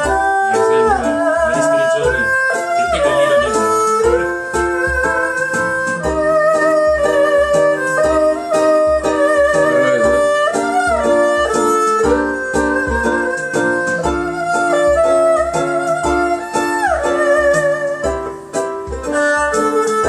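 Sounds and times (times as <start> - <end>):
backing track with steady beat: 0.0 - 20.0
erhu bowed melody: 0.0 - 20.0.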